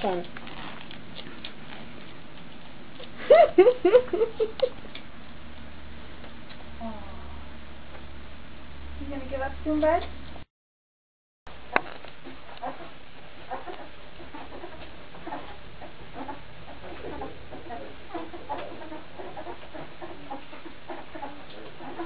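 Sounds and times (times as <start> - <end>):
puppies squeaking: 12.4 - 22.0.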